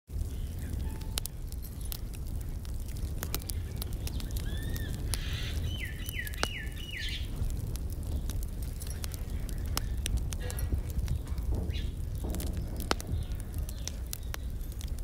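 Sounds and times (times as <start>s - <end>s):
wood fire crackling: 0.1s - 15.0s
bird chirping: 3.5s - 7.3s.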